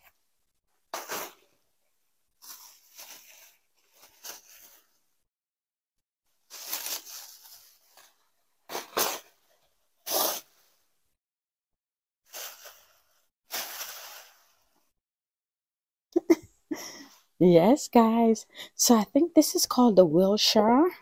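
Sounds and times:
bubble wrap rustling and crinkling: 0.9s - 1.6s, 2.4s - 5.0s, 6.4s - 10.5s, 12.3s - 14.8s.

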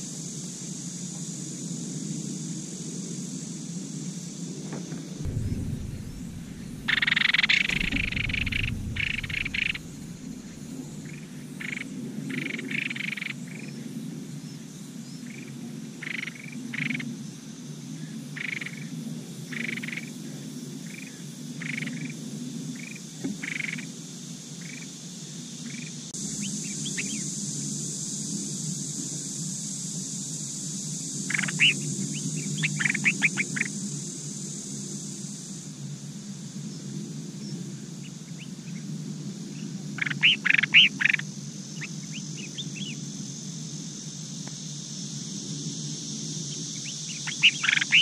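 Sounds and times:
high hiss: 5.1s - 11.8s
low hum: 5.2s - 11.2s.

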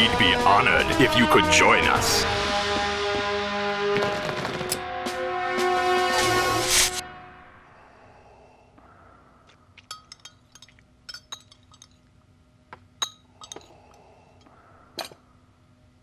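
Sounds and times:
faint steady hum: 7.0s - 16.0s.

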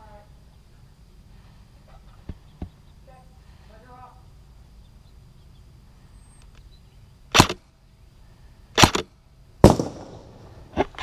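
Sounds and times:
airsoft gunfire cracks: 7.3s - 7.6s, 8.8s - 10.5s.

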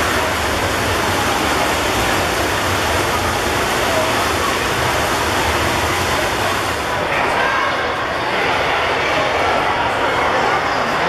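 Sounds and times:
swimmers splashing: 0.0s - 7.4s
spectators' voices: 0.0s - 11.0s.

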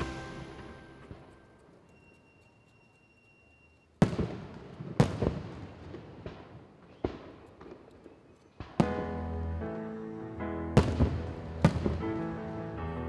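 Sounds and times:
fireworks booming and crackling: 0.0s - 1.4s, 4.0s - 9.2s, 10.8s - 12.4s.

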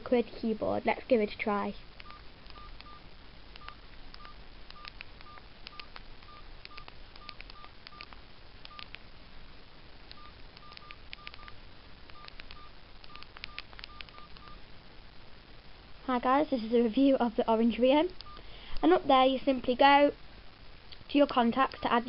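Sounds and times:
keypad beeps: 2.0s - 3.0s, 3.6s - 9.0s, 10.1s - 14.6s, 18.2s - 18.4s, 21.7s - 22.0s.

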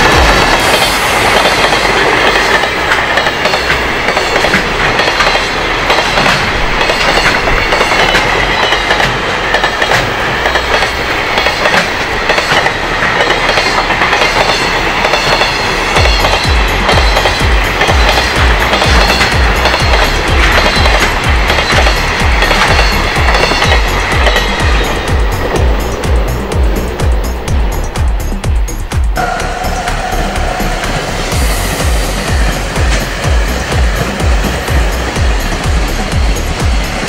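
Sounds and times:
wheels clicking over rail joints: 0.0s - 29.2s
train wheels rumbling on rail: 0.0s - 37.0s.

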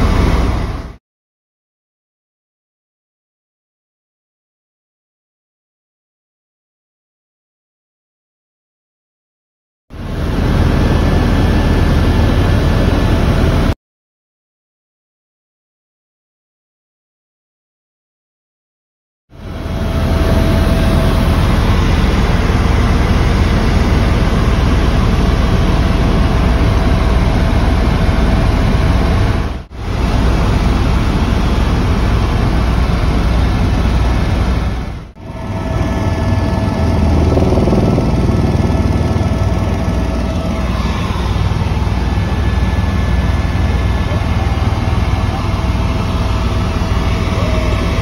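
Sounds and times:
helicopter rotor and engine drone: 0.0s - 1.0s, 9.9s - 13.8s, 19.4s - 48.0s.

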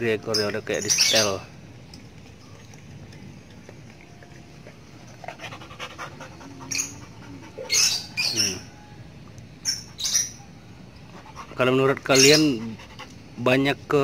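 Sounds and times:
dog panting heavily: 4.7s - 8.0s, 11.1s - 13.4s
dog breathy huffs: 5.2s - 7.9s.

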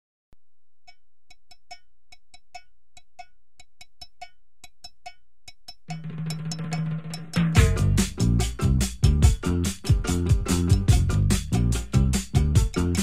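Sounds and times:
music with low bass: 7.5s - 13.0s.

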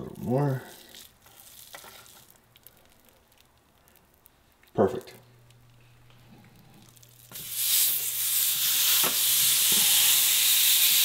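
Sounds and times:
beef sizzling in a hot pan: 7.3s - 11.0s.

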